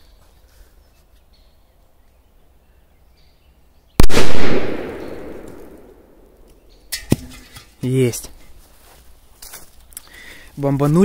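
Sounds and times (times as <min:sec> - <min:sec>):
firecracker blast with echo: 0:04.0 - 0:05.9.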